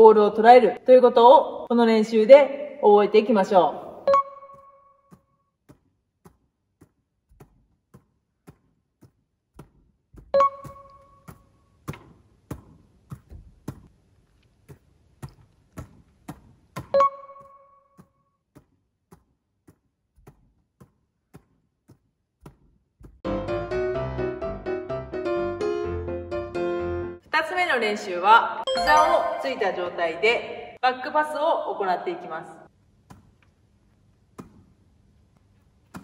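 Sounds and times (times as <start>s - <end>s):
volleyball slapping hands: 5.6s - 13.9s, 18.5s - 23.2s, 34.3s - 34.8s
music: 23.3s - 27.2s, 28.7s - 29.5s
short chime: 28.7s - 29.6s.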